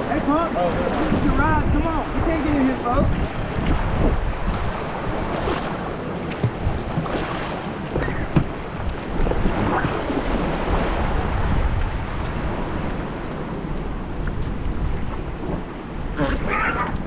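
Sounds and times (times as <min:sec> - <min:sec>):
wind buffeting microphone: 0:00.0 - 0:17.0
person calling out: 0:16.2 - 0:17.0.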